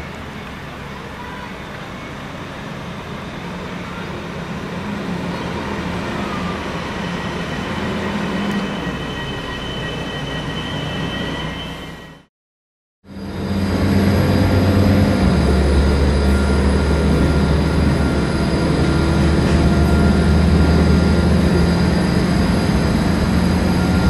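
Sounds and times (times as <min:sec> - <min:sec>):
diesel railcar engine rumbling: 0:00.0 - 0:12.3, 0:13.0 - 0:24.0
high brake squeal: 0:05.1 - 0:12.3, 0:13.1 - 0:24.0.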